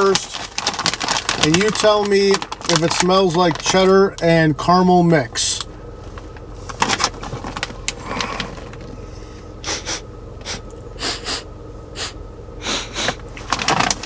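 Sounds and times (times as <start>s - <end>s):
low steady hum: 0.0s - 14.0s
person sniffing: 9.2s - 13.2s.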